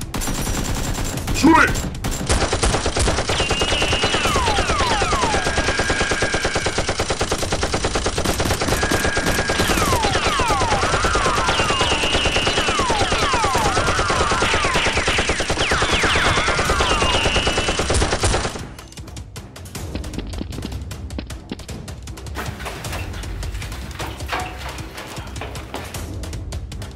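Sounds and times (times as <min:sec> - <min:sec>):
machine-gun fire: 0:00.0 - 0:18.9.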